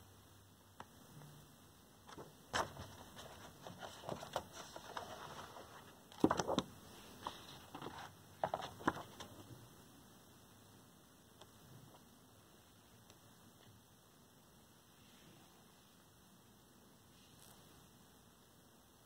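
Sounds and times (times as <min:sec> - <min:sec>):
book pages turning: 0:02.1 - 0:09.4.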